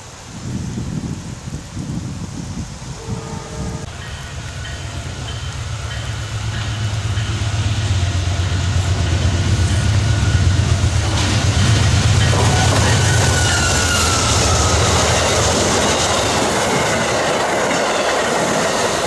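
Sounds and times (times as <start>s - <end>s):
diesel locomotive rumble: 2.8s - 19.0s.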